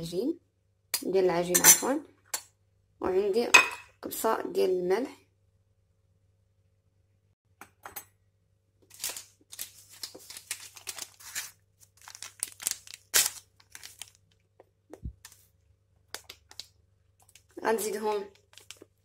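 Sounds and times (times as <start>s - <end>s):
paper sachet crinkling and tearing: 8.9s - 14.4s, 18.3s - 19.0s.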